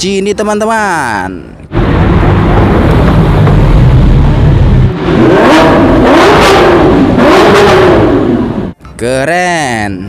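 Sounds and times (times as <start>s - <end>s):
sports car engine revving: 1.7s - 8.8s.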